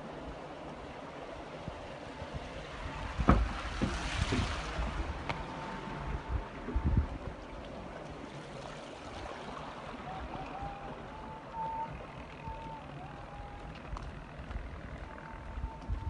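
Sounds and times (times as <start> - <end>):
water rushing down a channel: 0.0 - 16.0
thin wavering whistling tone: 9.8 - 16.0.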